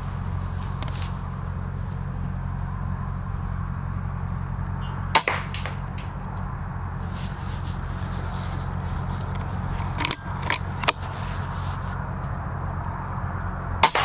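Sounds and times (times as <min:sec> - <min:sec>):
steady low hum: 0:00.0 - 0:14.0
air rifle shot crack: 0:05.1 - 0:06.2.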